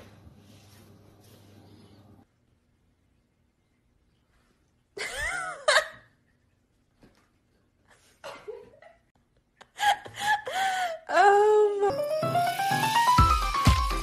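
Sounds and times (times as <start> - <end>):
woman laughing: 5.0 - 6.1, 8.2 - 11.0.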